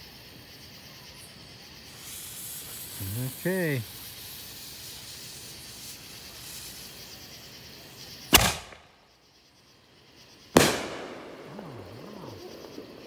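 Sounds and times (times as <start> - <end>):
firework launch bang: 8.3 - 9.0, 10.6 - 11.8
firework burst with rumbling echo: 10.6 - 13.0.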